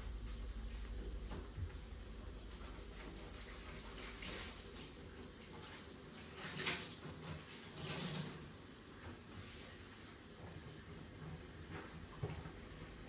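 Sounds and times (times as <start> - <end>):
water splashing in sink: 1.0 - 10.0.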